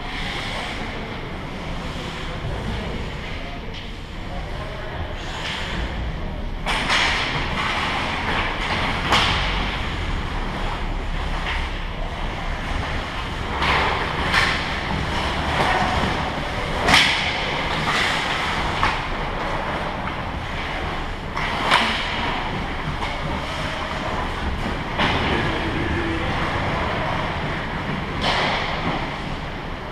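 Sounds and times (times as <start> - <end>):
steady rink noise: 0.0 - 29.9
hockey play clacks: 6.6 - 10.7, 11.3 - 29.9.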